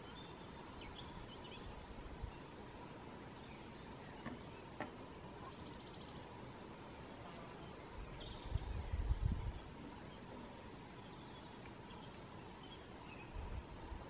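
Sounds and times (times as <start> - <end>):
background hiss: 0.0 - 14.0.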